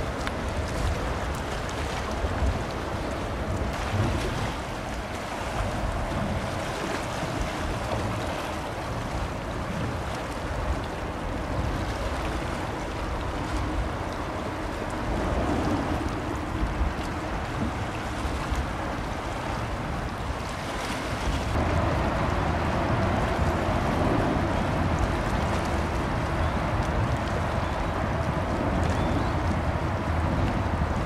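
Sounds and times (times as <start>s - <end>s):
boat engines rumbling: 0.0s - 31.0s
wind buffeting microphone: 0.0s - 31.0s.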